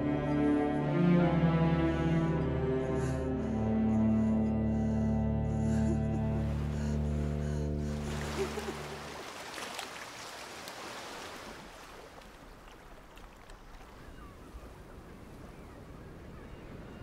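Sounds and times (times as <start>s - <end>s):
held music chord: 0.0s - 8.2s
sea waves: 3.4s - 17.0s.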